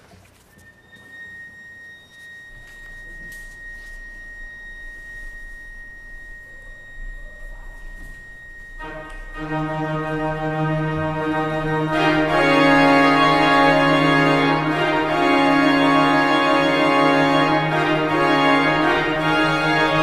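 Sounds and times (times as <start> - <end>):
high steady tone: 0.4 - 20.0
organ chord: 8.0 - 20.0.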